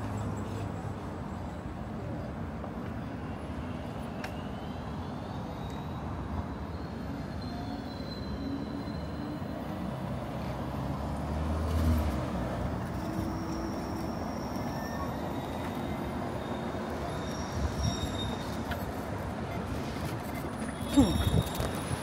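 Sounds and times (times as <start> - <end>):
hum of passing traffic: 8.4 - 22.0.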